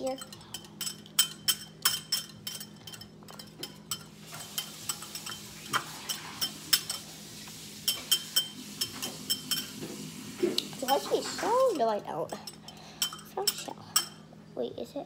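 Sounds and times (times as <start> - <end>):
whisk clinking against glass bowl: 0.0 - 7.0, 7.9 - 9.8.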